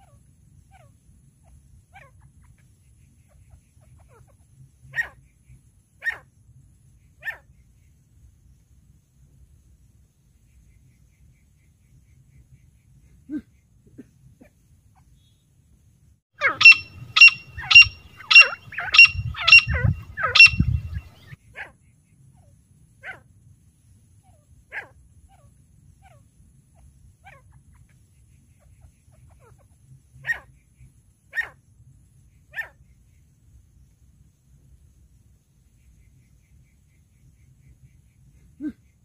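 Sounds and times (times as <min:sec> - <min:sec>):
francolin calling: 0:16.4 - 0:21.4
low rumble: 0:16.8 - 0:21.3.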